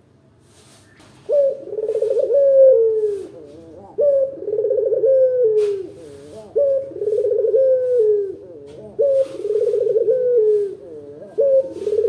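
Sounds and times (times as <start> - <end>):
dove cooing: 1.1 - 12.0.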